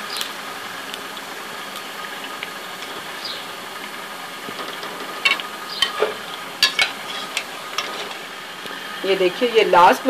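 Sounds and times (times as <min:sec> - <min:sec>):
rolls sizzling in hot oil: 0:00.0 - 0:10.0
metal skimmer clinking on pan: 0:04.6 - 0:08.2.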